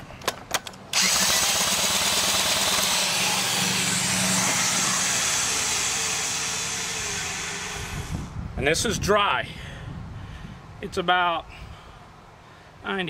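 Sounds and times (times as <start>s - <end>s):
drill spinning outboard engine: 0.9s - 8.3s.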